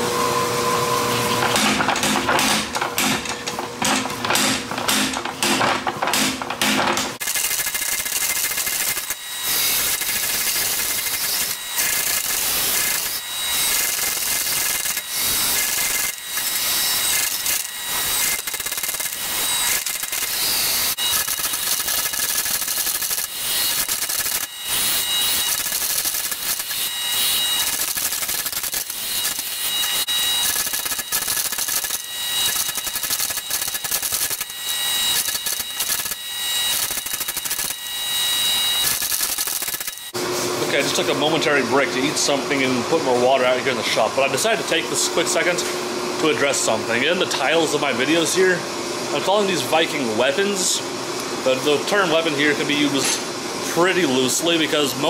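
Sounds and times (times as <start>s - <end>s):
high-pitched machine tones: 0.2s - 40.2s
power hammer striking steel: 1.4s - 40.1s.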